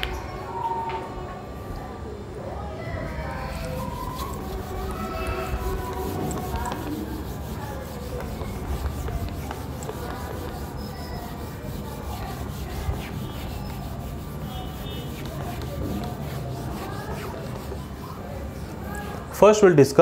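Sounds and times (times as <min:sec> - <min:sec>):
duster rubbing on whiteboard: 0:03.1 - 0:19.4.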